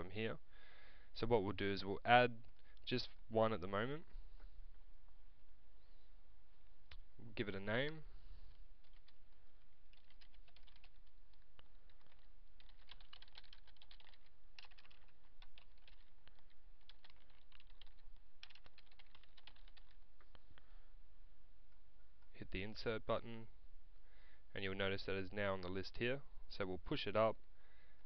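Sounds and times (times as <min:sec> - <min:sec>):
typing on computer keyboard: 0:08.8 - 0:20.4.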